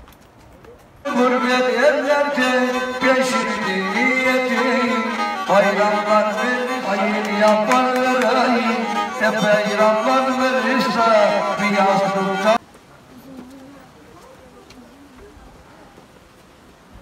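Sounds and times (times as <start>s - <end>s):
man singing folk song: 1.0s - 12.6s
bowed fiddle: 1.1s - 12.6s.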